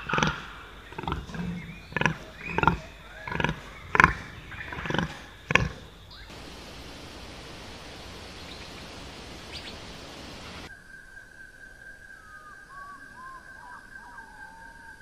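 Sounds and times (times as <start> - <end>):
animal grunting: 0.0 - 6.4
background hiss: 0.0 - 12.2.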